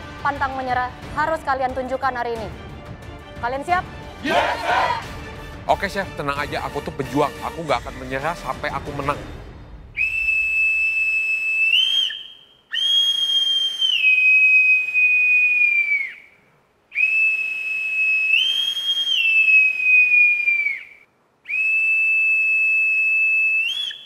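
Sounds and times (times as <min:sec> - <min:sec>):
bosun's pipe shrill whistling: 0:10.0 - 0:24.0.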